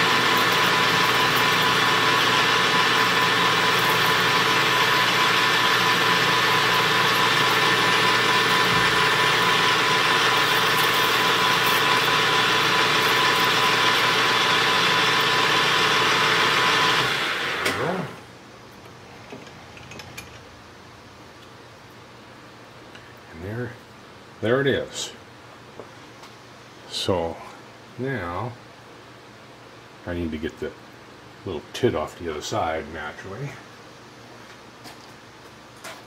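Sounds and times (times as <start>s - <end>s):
lathe motor winding down: 0.0s - 18.3s
metal lathe whining: 0.0s - 18.3s.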